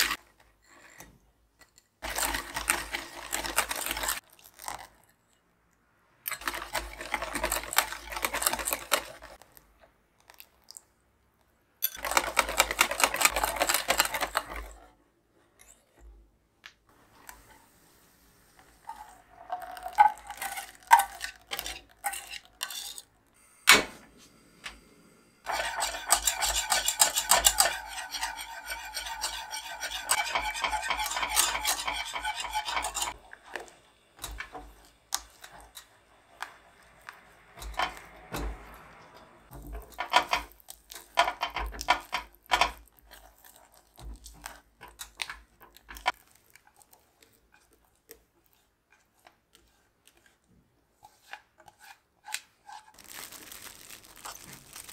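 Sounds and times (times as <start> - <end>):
wire whisk against pan: 25.5 - 36.6.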